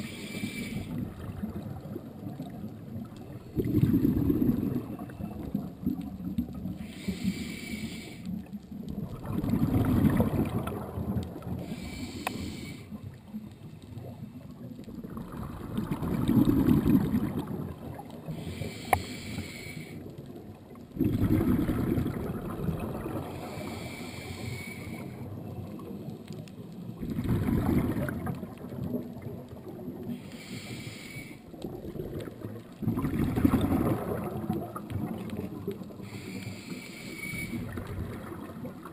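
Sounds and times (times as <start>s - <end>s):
regulator hiss: 0.0s - 0.9s, 6.8s - 8.2s, 11.7s - 13.0s, 18.4s - 20.0s, 30.2s - 31.4s, 36.0s - 37.6s
exhaled air bubbling: 0.0s - 38.9s.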